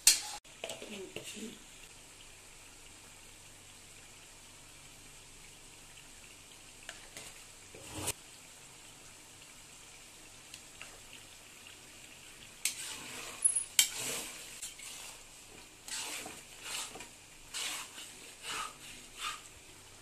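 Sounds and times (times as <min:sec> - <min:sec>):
spatula scraping pan: 0:00.0 - 0:00.4, 0:07.2 - 0:08.2, 0:12.6 - 0:19.6
onions sizzling in hot oil: 0:00.0 - 0:20.0.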